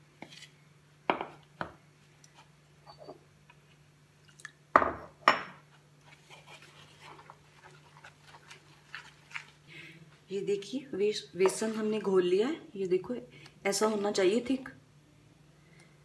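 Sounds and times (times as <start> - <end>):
batter being stirred: 5.6 - 12.3.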